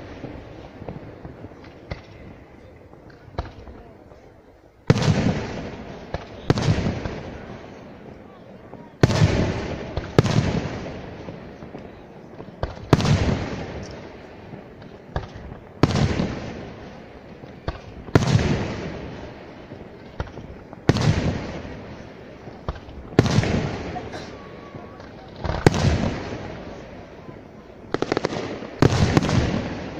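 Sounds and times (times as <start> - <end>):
sharp firework reports: 17.6 - 29.9.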